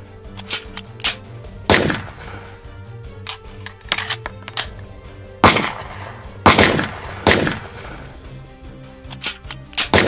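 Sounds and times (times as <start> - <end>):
background music: 0.0 - 10.0
echoing gunshots: 1.6 - 2.6, 5.4 - 8.1.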